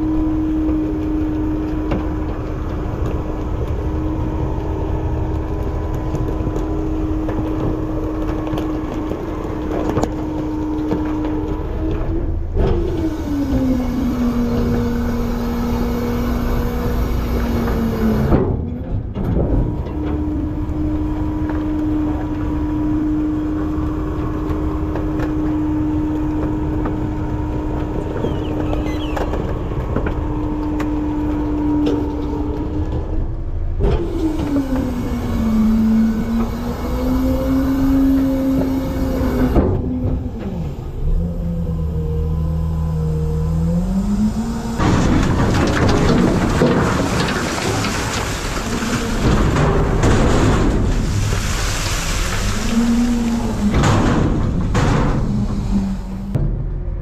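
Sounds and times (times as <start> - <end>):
garbage truck engine and hydraulics: 0.0 - 57.0
trash pouring into hopper: 43.9 - 56.4.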